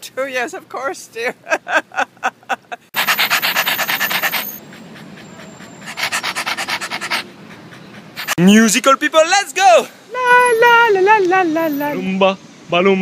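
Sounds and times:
rapid panting: 0:02.9 - 0:08.4.

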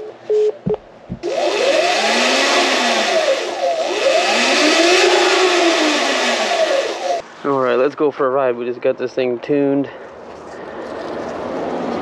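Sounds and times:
electric motorbike motor whining: 0:01.2 - 0:07.2
loud steady rushing noise: 0:01.3 - 0:07.2.

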